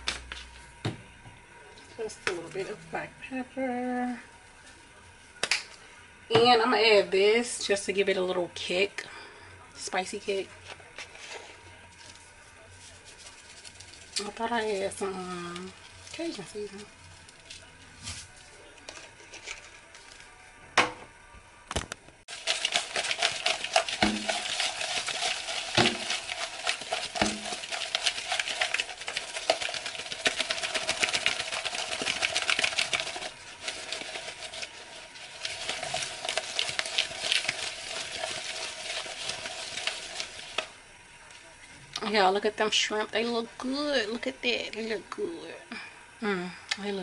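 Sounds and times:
shrimp rattling in plastic tub: 22.3 - 34.7.

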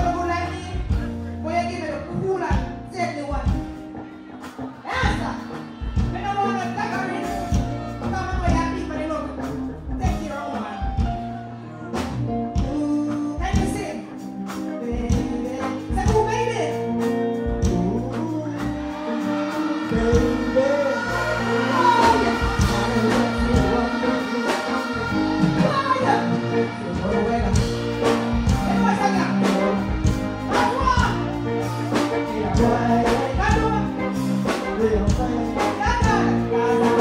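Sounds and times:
live music with steady beat: 0.0 - 37.0
woman singing into microphone: 12.6 - 14.1, 14.7 - 31.2, 32.1 - 37.0.

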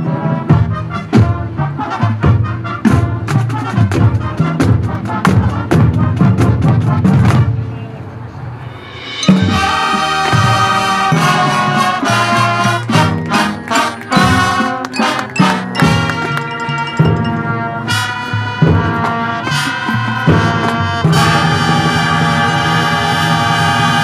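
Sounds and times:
brass chords: 8.7 - 24.0
drum hits: 8.9 - 10.6.

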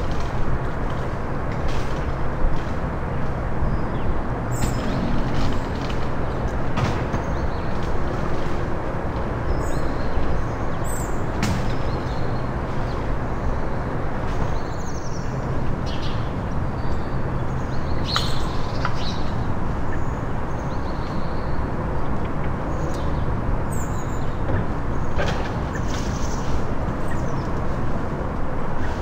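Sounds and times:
small birds chirping: 14.4 - 27.6.

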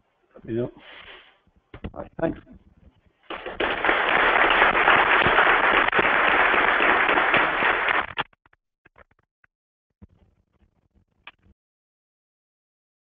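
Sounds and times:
audience applauding: 3.3 - 8.2.

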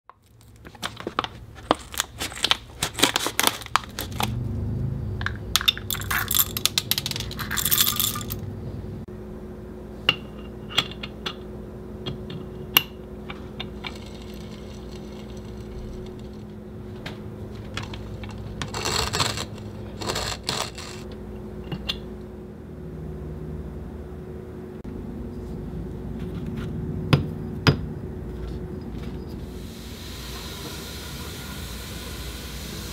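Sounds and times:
steady low hum: 3.8 - 30.0
coffee beans rattling in hand grinder: 5.6 - 8.4, 13.6 - 16.5, 17.6 - 21.1.

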